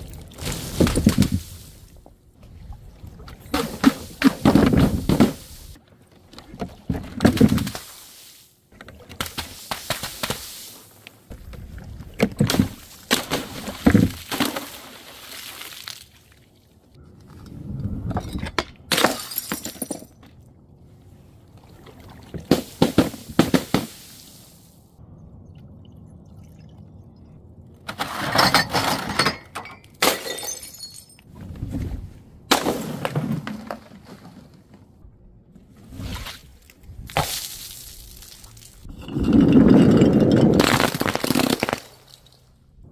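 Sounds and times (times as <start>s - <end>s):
glass breaking: 28.3s - 31.2s.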